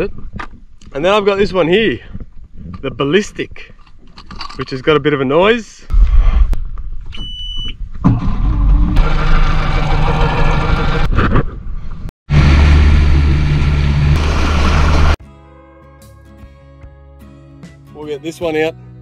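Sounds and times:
background music: 15.2 - 19.0.

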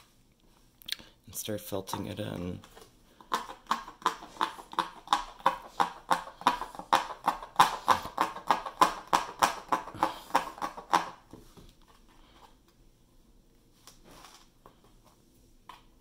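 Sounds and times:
felting needle tapping through canvas: 3.2 - 11.4.

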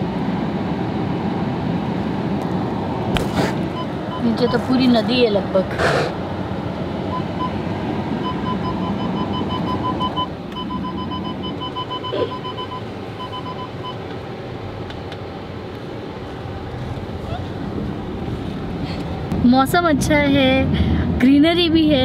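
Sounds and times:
car tyres and engine rumbling: 0.0 - 22.0
high electronic beeping: 8.2 - 14.0.

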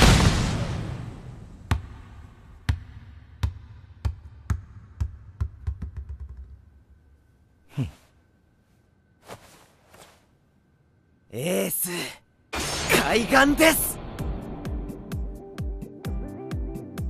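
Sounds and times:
ball bouncing: 2.7 - 6.6.

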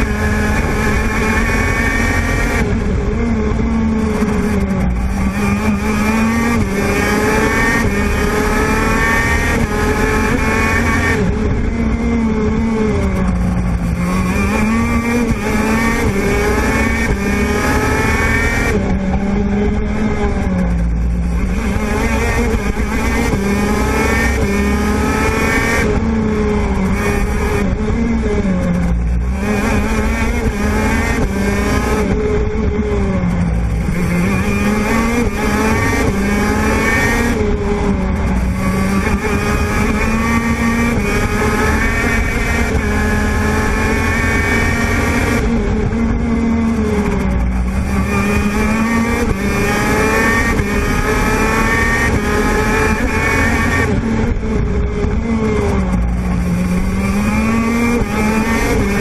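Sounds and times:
kart two-stroke engine racing: 0.0 - 59.0.

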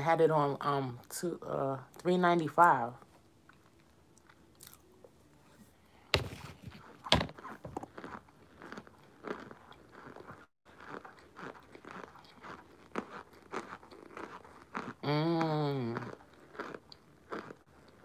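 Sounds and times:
crunchy chewing: 3.5 - 4.9, 6.8 - 18.0.

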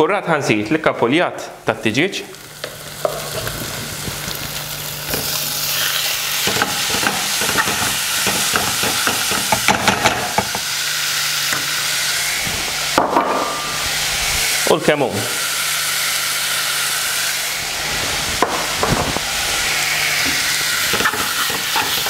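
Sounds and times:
meat and leeks sizzling in a pan: 2.3 - 14.7, 15.4 - 22.0
spatula scraping a pan: 5.6 - 10.6, 20.2 - 22.0.

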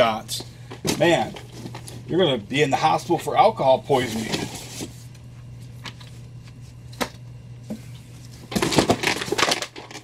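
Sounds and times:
steady low hum: 0.0 - 10.0
cardboard and paper rustling: 3.9 - 5.1, 8.2 - 10.0.

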